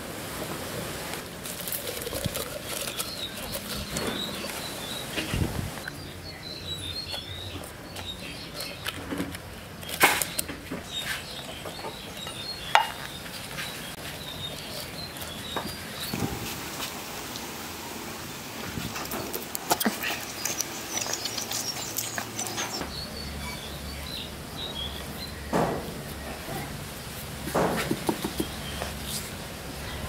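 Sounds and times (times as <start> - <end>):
hands rustling vegetables: 0.4 - 5.9
small birds chirping: 1.8 - 17.4, 18.7 - 26.7, 27.8 - 30.0.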